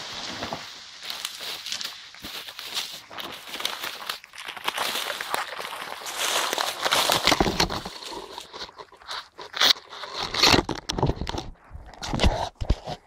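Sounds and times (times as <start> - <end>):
dry leaves crunching underfoot: 0.0 - 10.2.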